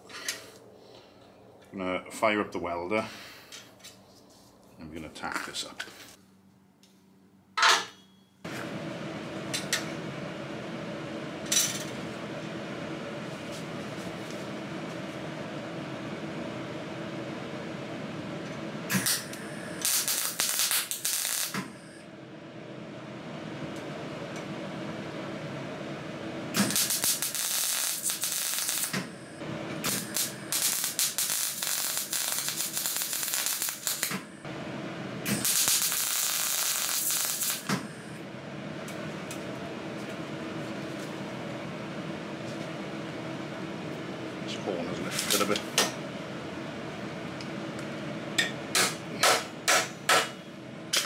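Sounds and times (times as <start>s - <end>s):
welder low hum: 8.5s - 48.0s
welding arc sizzle and crackle: 18.9s - 22.0s, 26.5s - 34.5s, 35.2s - 38.2s, 48.4s - 51.0s.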